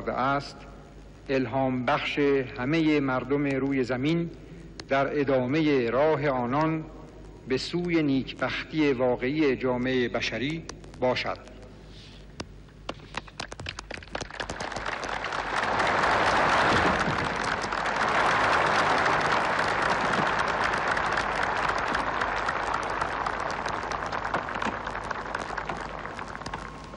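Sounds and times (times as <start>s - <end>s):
audience applauding: 13.0s - 26.9s.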